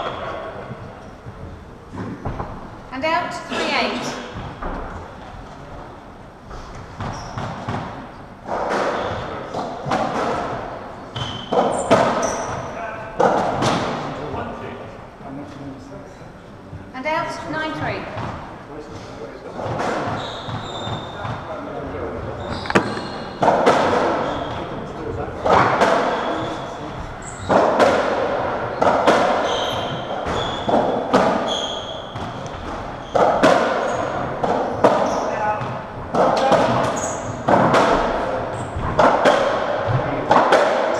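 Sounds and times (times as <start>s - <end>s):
ball hitting racket and walls: 1.9s - 2.8s, 6.7s - 14.5s, 18.1s - 18.5s, 19.6s - 24.8s, 25.4s - 40.9s
shoes squeaking on wooden floor: 6.5s - 7.7s, 11.0s - 12.8s, 19.8s - 24.8s, 28.7s - 35.8s, 36.7s - 37.6s
ball thudding against walls: 22.3s - 24.6s
ball knocking off rackets: 22.5s - 24.1s.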